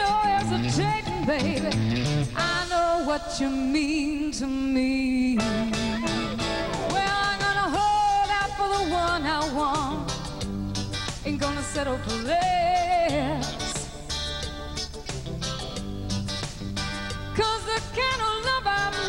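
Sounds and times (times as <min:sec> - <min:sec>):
bass and drums: 0:00.0 - 0:19.0
electric guitar solo: 0:05.3 - 0:09.2.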